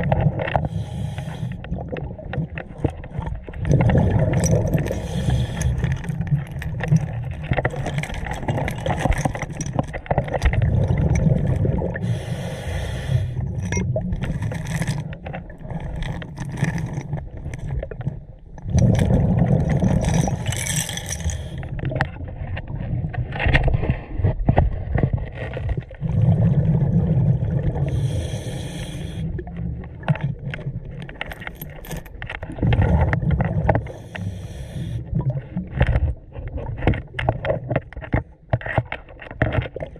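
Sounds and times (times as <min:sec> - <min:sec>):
exhaled bubbles rumbling: 0:00.0 - 0:12.6, 0:13.2 - 0:39.9
regulator inhale hiss: 0:00.6 - 0:01.6, 0:05.0 - 0:05.8, 0:12.0 - 0:13.4, 0:27.9 - 0:29.4, 0:33.9 - 0:35.1.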